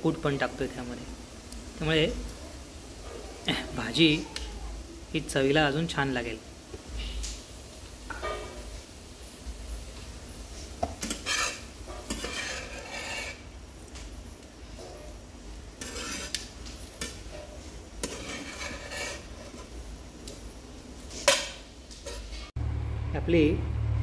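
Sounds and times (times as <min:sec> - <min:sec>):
spatula scraping iron pan: 0:10.8 - 0:13.5, 0:14.7 - 0:19.8.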